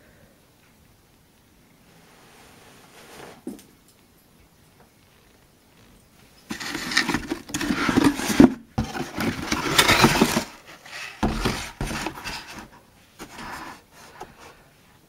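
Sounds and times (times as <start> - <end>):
paper and cardboard rustling: 6.5 - 14.7.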